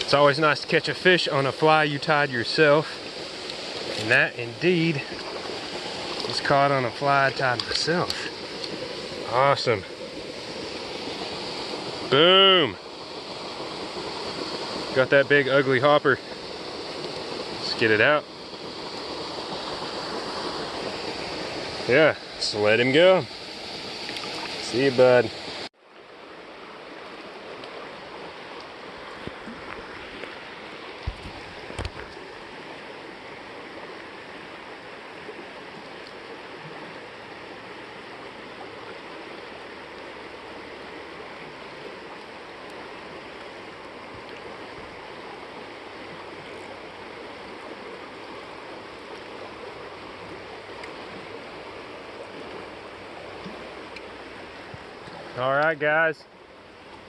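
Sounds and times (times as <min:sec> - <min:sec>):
stream water rushing over rocks: 0:00.0 - 0:57.0.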